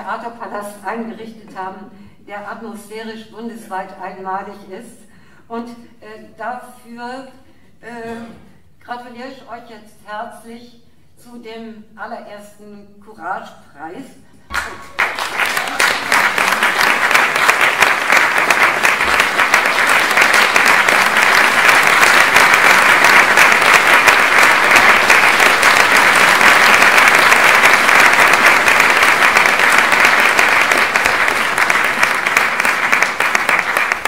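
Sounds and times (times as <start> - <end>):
audience applauding: 14.5 - 34.0.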